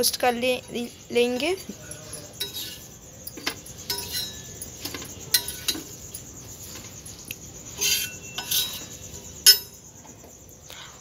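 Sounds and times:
metal spatula scraping griddle: 1.6 - 7.0, 7.7 - 9.7.

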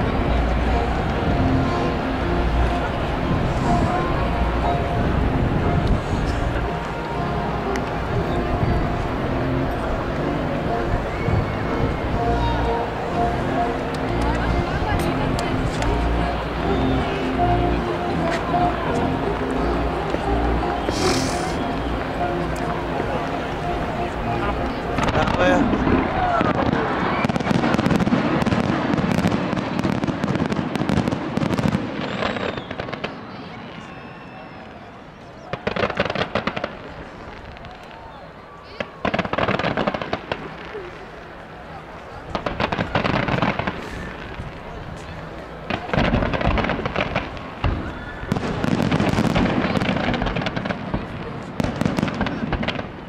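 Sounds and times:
fireworks bangs and crackling: 17.2 - 34.8, 35.4 - 53.0.

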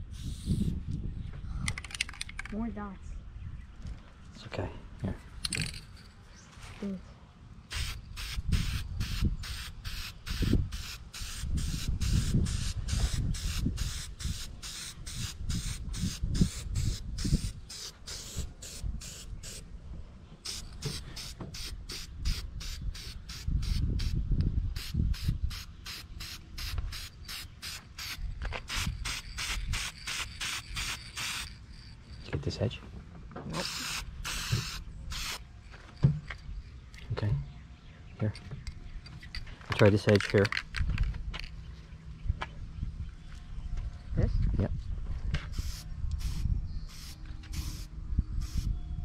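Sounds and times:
spray can hissing: 0.1 - 0.7, 7.7 - 19.6, 20.5 - 24.2, 24.8 - 31.6, 33.6 - 35.4, 45.5 - 48.7.

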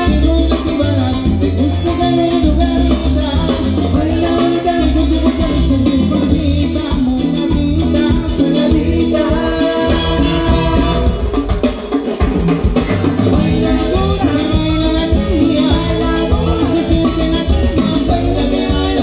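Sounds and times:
person singing: 0.0 - 11.4, 13.1 - 19.0
congas: 0.0 - 19.0
drum kit beat: 0.0 - 19.0
electric guitars: 0.0 - 19.0
trumpets: 9.7 - 11.5.

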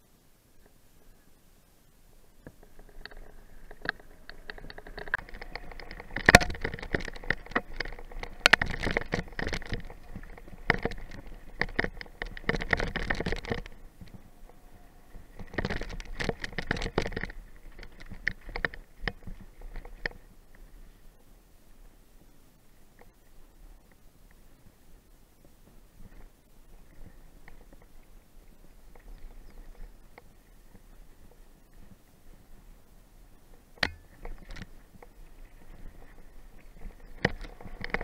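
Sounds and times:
mountain bike rattling on rocks: 2.4 - 21.0, 25.6 - 32.8, 33.4 - 38.0.

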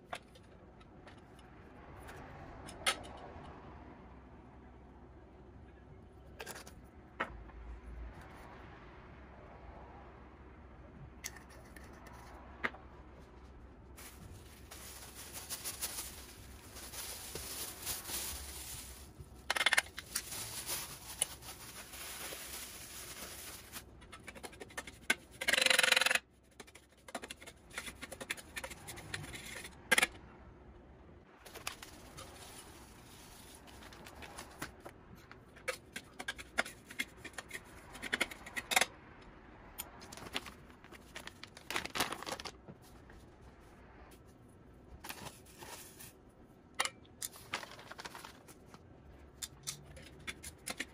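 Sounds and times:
salt shaken from a pouch: 14.0 - 19.1
plastic bag crinkling: 14.0 - 23.9, 40.0 - 42.6, 47.4 - 48.5.

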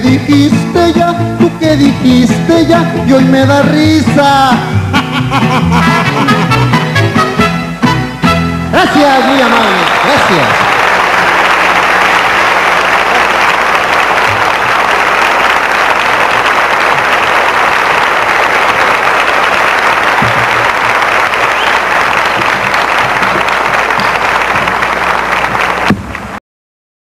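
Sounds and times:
large audience applauding: 8.8 - 26.4.

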